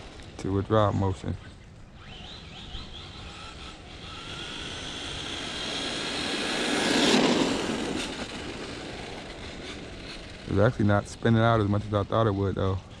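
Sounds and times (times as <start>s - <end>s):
electric motor whining: 2.0s - 10.6s.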